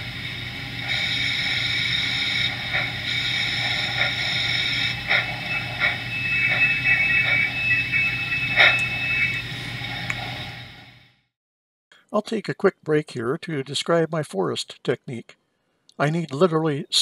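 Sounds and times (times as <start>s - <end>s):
model locomotive mechanical hum: 0.0s - 11.0s
thin high whine: 0.0s - 11.2s.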